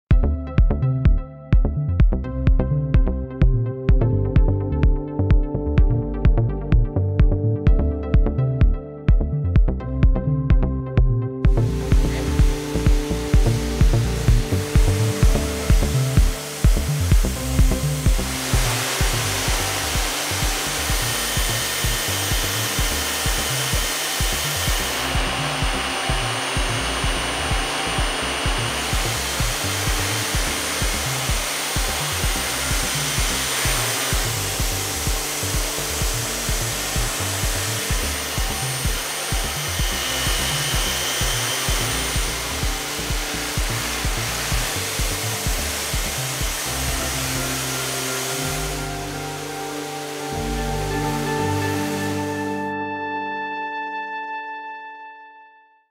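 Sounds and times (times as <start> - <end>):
background music with steady beat: 0.0 - 54.7
steady rushing hiss: 11.5 - 52.6.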